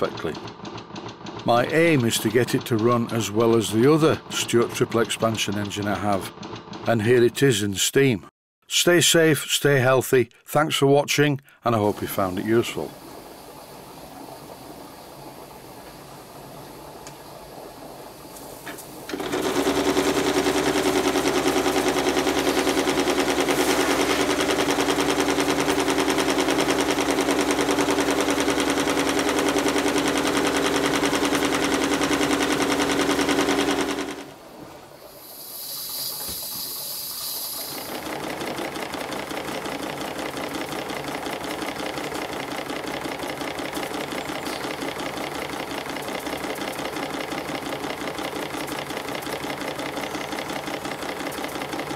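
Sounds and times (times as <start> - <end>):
model steam engine clattering: 0.0 - 7.3, 35.8 - 51.9
short high steam hiss: 35.0 - 38.0.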